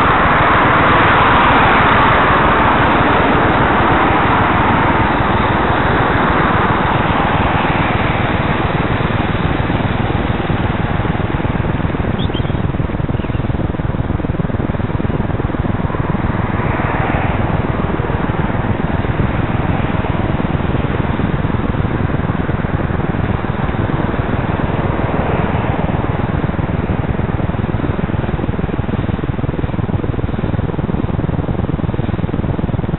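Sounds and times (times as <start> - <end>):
traffic on wet road: 0.0 - 11.0, 15.9 - 20.4, 24.5 - 26.1
wind buffeting microphone: 0.0 - 32.9.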